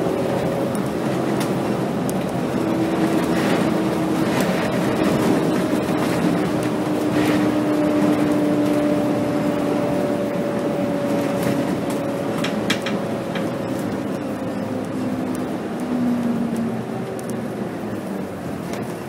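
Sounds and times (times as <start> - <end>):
bus diesel engine: 0.0 - 19.0
road noise: 0.0 - 19.0.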